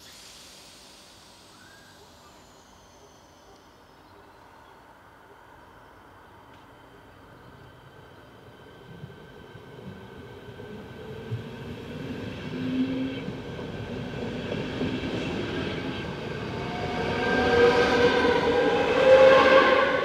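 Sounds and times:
multi-tone train whine: 0.0s - 20.0s
train passing on rails: 0.0s - 20.0s.

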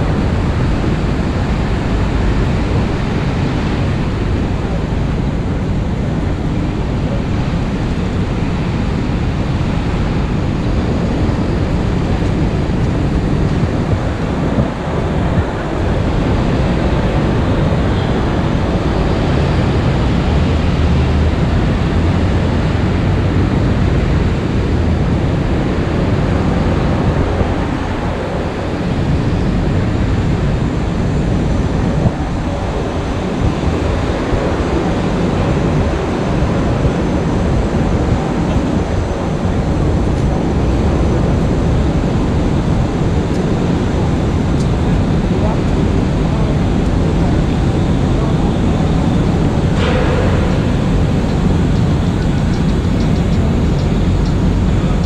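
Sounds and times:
traffic rumble: 0.0s - 55.0s.

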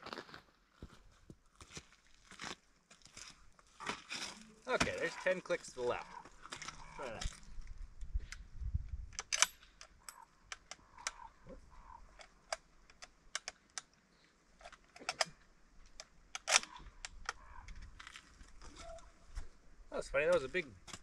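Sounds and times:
rifle bolt metallic clicks: 9.1s - 11.2s, 11.8s - 14.0s, 14.6s - 17.6s.

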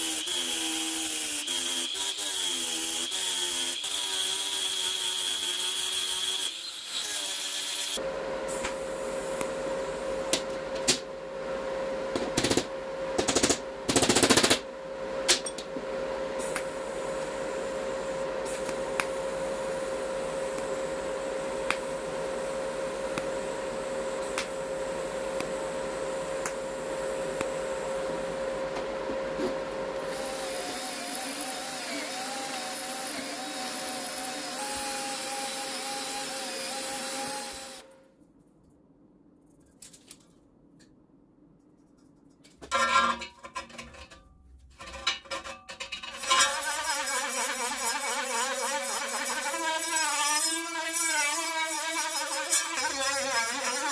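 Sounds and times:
power tool whining: 30.0s - 37.9s
hiss: 30.1s - 37.8s.

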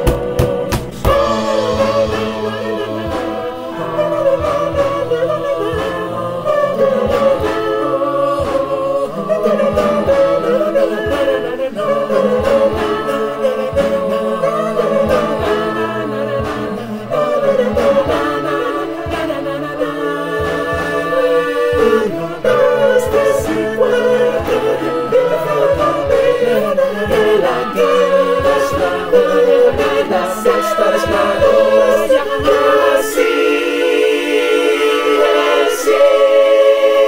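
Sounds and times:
a cappella choir singing: 0.0s - 37.0s
hand claps and slaps: 0.1s - 1.2s.

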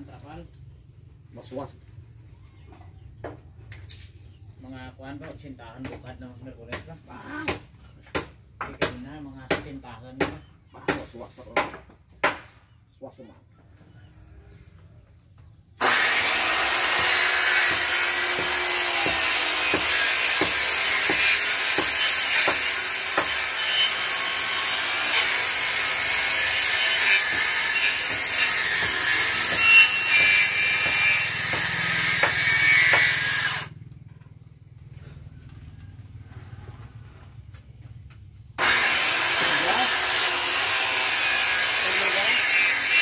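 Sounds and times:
power tool cutting wood: 15.8s - 33.9s, 38.6s - 43.0s.

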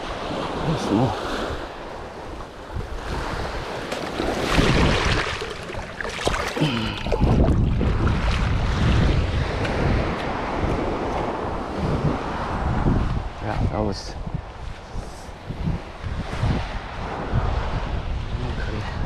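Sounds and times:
ocean surf washing onto beach: 0.0s - 19.0s
wind gusting on microphone: 0.0s - 19.0s.

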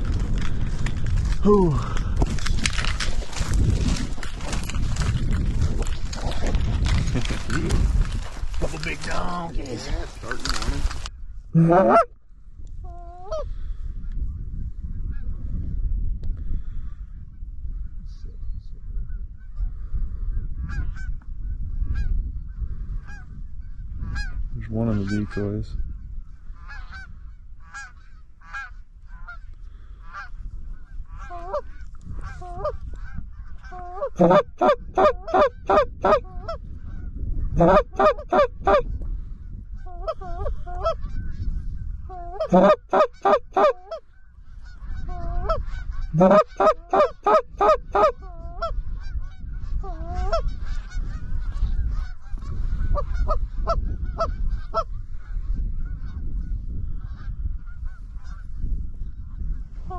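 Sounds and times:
low wind rumble: 0.0s - 59.9s
goose calls clucks and honks: 11.6s - 12.1s, 26.6s - 29.4s, 30.0s - 38.9s, 39.8s - 41.4s, 42.1s - 44.0s, 44.6s - 55.0s
flock of geese honking: 11.7s - 12.1s, 24.1s - 25.5s, 26.5s - 38.9s, 39.8s - 41.4s, 42.1s - 58.6s.

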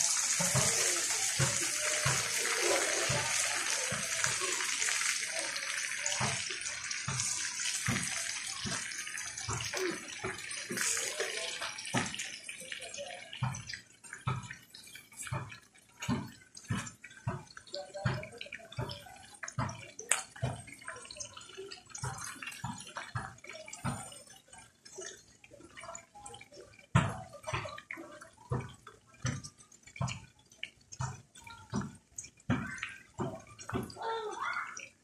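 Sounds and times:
sausages sizzling in a pan: 0.0s - 31.2s
oil popping and crackling: 0.0s - 35.0s.

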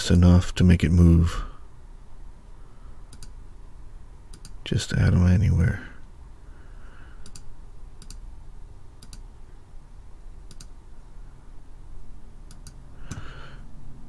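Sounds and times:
faint low hum: 0.0s - 14.0s
computer mouse clicking: 3.1s - 3.4s, 4.3s - 4.6s, 7.2s - 8.2s, 9.0s - 9.3s, 10.5s - 10.8s, 12.5s - 13.3s.

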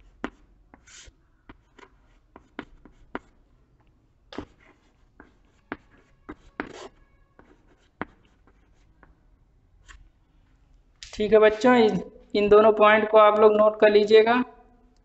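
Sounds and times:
chalk writing on a chalkboard: 0.0s - 3.4s, 4.3s - 9.1s.

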